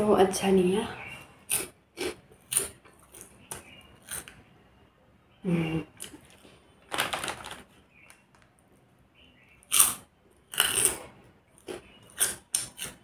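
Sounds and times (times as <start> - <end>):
plastic packet crinkling: 6.1 - 8.6.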